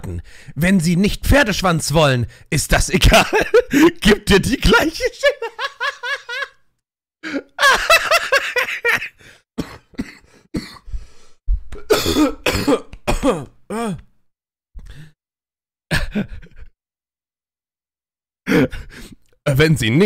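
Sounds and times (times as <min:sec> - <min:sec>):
man coughing: 0:03.1 - 0:04.0, 0:07.3 - 0:10.9, 0:11.8 - 0:14.0, 0:15.9 - 0:16.4.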